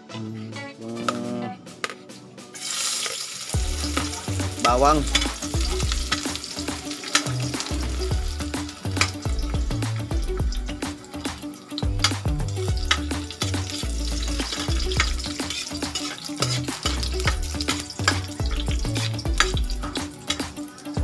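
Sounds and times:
background music with bass line: 0:00.0 - 0:02.7, 0:03.5 - 0:21.0
garlic sizzling in hot oil: 0:02.6 - 0:21.0
metal spatula scraping pan: 0:12.8 - 0:20.6.

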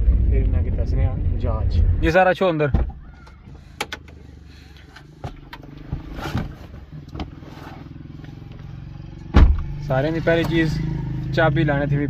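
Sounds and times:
knocks and rustles in car seat: 0:05.2 - 0:07.8.

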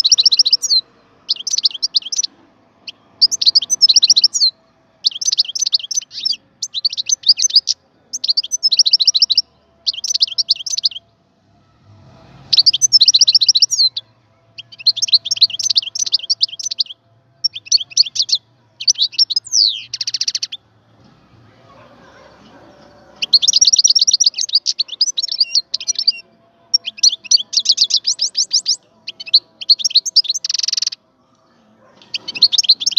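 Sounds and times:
goldfinch twittering song: 0:00.0 - 0:02.3, 0:03.2 - 0:11.0, 0:12.5 - 0:14.0, 0:14.6 - 0:20.6, 0:23.2 - 0:31.0, 0:32.1 - 0:32.9.

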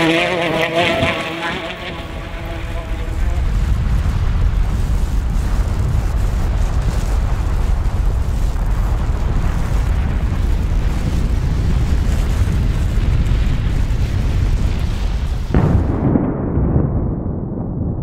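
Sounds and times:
volcanic eruption rumble: 0:00.0 - 0:18.0.

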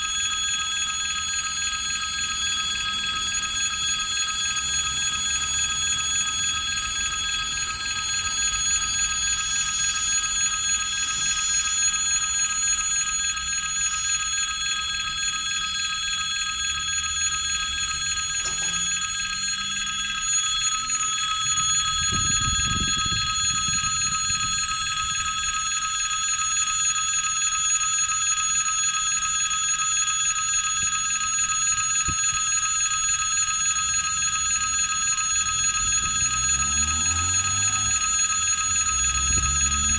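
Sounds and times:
railway crossing warning bell ringing: 0:17.0 - 0:25.6, 0:34.2 - 0:39.9.

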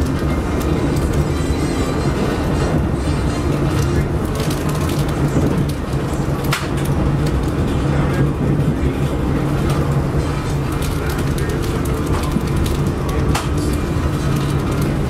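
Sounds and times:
wheels rumbling on track: 0:00.0 - 0:15.0
sharp clicks and rattles: 0:09.0 - 0:15.0.

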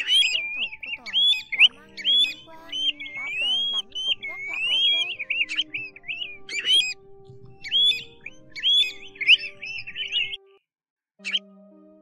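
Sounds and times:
bird whistling calls: 0:00.0 - 0:10.4
background music held tones: 0:00.0 - 0:10.6, 0:11.2 - 0:12.0.

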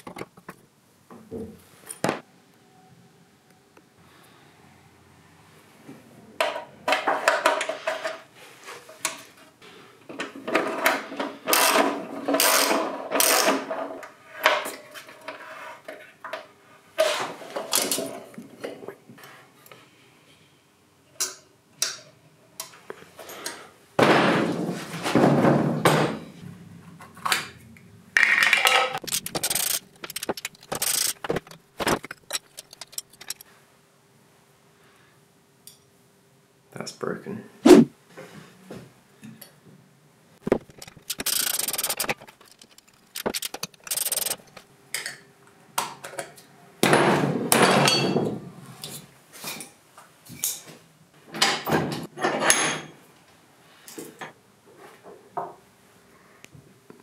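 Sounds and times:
metal parts and tools clinking: 0:28.2 - 0:33.4, 0:40.5 - 0:44.6.

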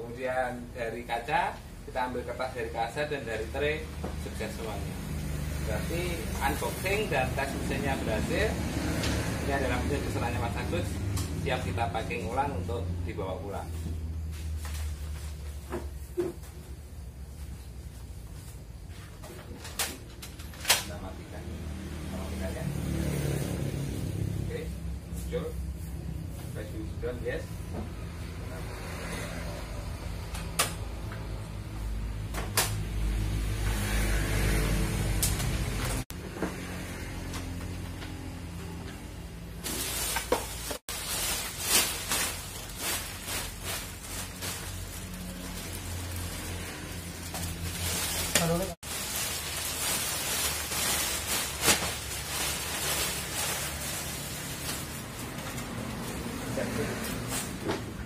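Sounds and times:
plastic bag rustling and crinkling: 0:39.5 - 0:57.6.

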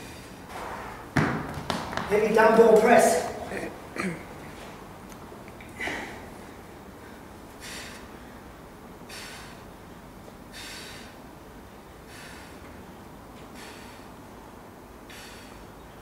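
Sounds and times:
man breathing out hard: 0:05.7 - 0:09.7, 0:10.5 - 0:11.2, 0:12.0 - 0:12.7, 0:13.4 - 0:14.2, 0:15.0 - 0:15.8.

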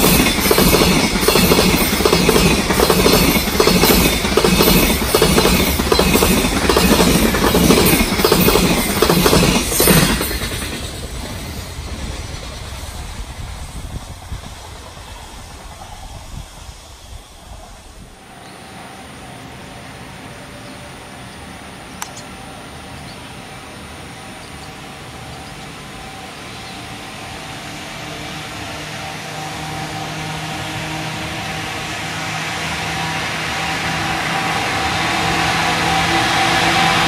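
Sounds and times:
freight train rumble: 0:00.0 - 0:37.0
sharp click: 0:22.0 - 0:22.3.

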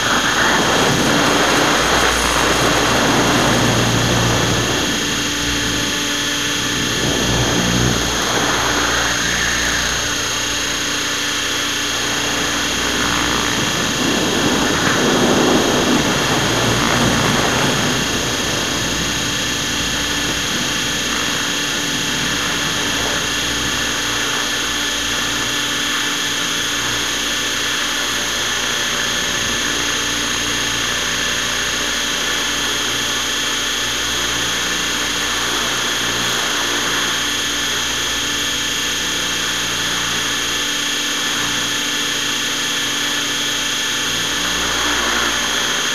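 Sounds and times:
rush of air: 0:00.0 - 0:25.3
model helicopter motor whine: 0:00.0 - 0:45.9.

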